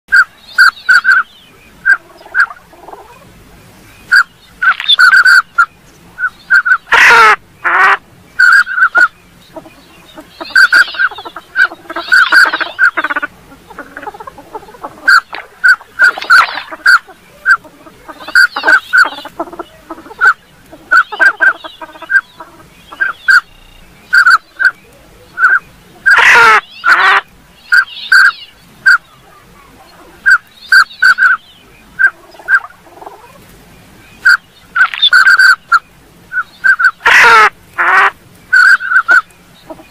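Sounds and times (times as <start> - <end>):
duck whistled calls: 0.1 - 2.6, 4.1 - 24.8, 25.4 - 29.1, 30.2 - 31.4, 32.0 - 32.7, 34.2 - 39.9
raspy duck calls sliding down: 4.1 - 5.7, 6.5 - 9.1, 10.1 - 23.5, 25.4 - 29.0, 34.2 - 35.8, 36.6 - 39.9.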